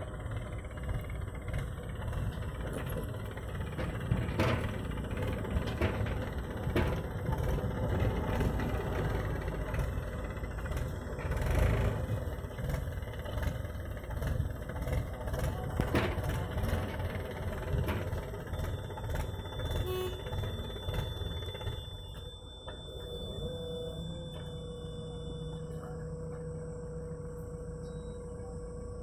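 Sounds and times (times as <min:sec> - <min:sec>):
diesel engines running: 0:00.0 - 0:29.0
thin high tone: 0:17.6 - 0:29.0.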